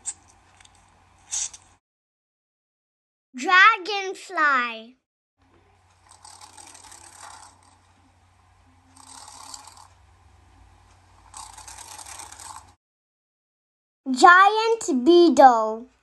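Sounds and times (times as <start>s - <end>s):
faint low hum: 5.4s - 12.8s
dragonfly wings buzzing: 6.0s - 8.1s, 8.8s - 9.9s, 11.2s - 12.8s.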